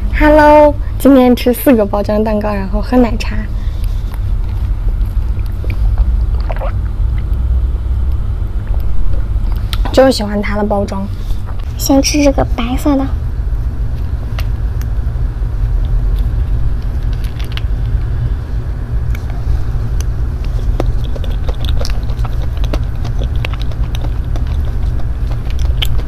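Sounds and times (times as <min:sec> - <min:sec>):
steady low rumble: 0:00.0 - 0:26.0
wet mouth eating sounds: 0:04.1 - 0:07.4, 0:08.6 - 0:09.9, 0:15.8 - 0:18.2, 0:19.1 - 0:26.0.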